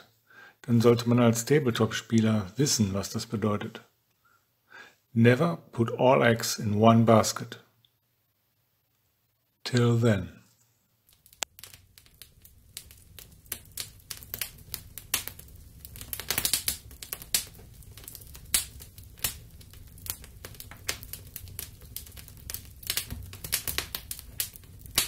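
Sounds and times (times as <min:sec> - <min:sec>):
fire crackling and popping: 0:11.0 - 0:25.0
low rumble of burning: 0:11.0 - 0:25.0.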